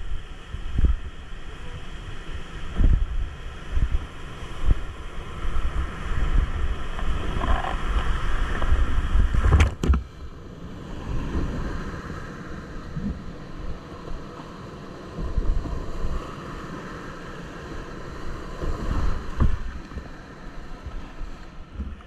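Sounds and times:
wind buffeting microphone: 0:00.0 - 0:14.4, 0:15.0 - 0:16.5, 0:18.0 - 0:20.2.

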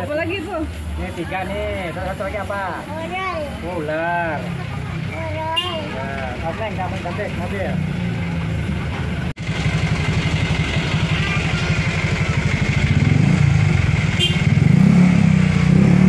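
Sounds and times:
motorcycle engine puttering: 0:08.4 - 0:15.8.

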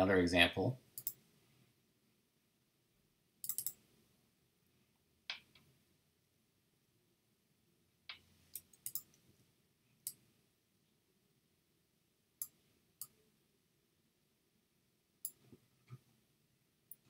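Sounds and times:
computer mouse clicking: 0:01.0 - 0:01.2, 0:03.4 - 0:03.8, 0:08.1 - 0:09.2.

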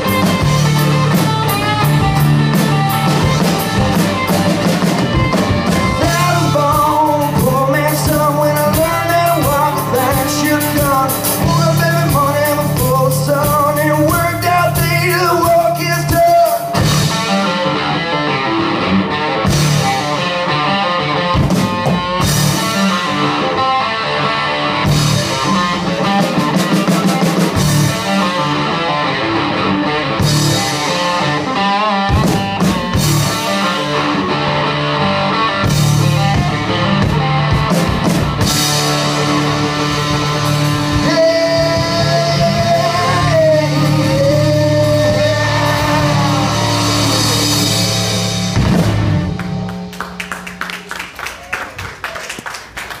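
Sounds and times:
band playing: 0:00.0 - 0:53.0
person singing: 0:05.6 - 0:16.9, 0:39.0 - 0:48.1
hand clapping: 0:49.4 - 0:53.0.

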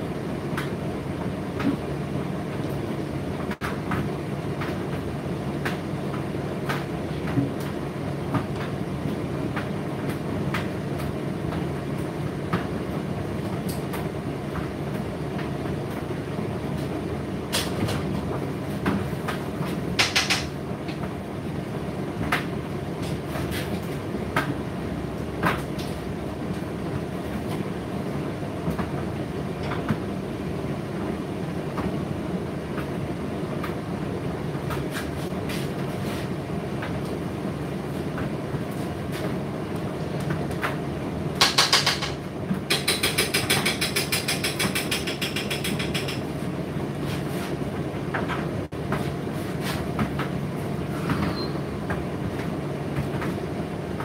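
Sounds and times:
tumble dryer motor humming: 0:00.0 - 0:54.0
clicks and knocks in dryer: 0:18.8 - 0:21.2, 0:41.4 - 0:46.3
rapid knocking: 0:41.4 - 0:46.3.

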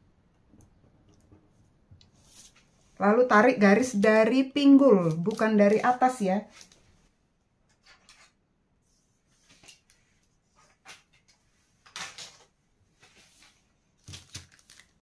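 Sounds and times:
paper rustling: 0:04.9 - 0:07.1, 0:09.2 - 0:15.0.

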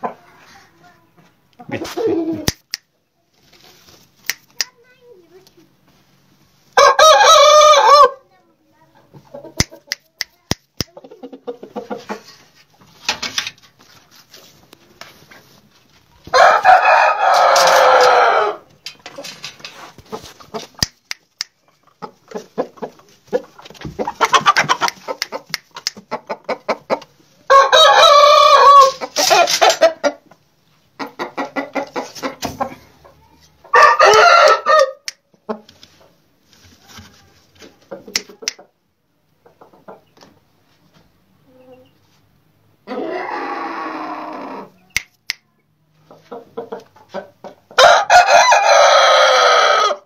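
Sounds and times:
roosters crowing: 0:06.7 - 0:08.2, 0:16.3 - 0:18.8, 0:27.5 - 0:30.1, 0:33.7 - 0:35.1, 0:42.8 - 0:44.8, 0:47.8 - 0:50.0
rapid clucking: 0:20.0 - 0:27.2.

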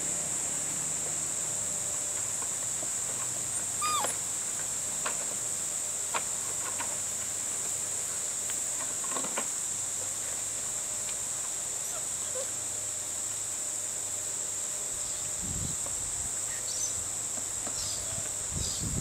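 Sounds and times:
puppy whining: 0:03.5 - 0:04.3, 0:11.8 - 0:12.6.

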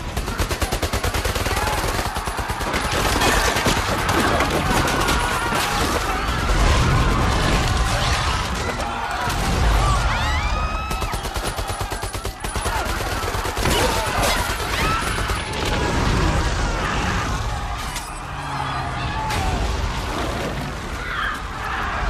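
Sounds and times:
automatic gunfire: 0:10.8 - 0:15.7.

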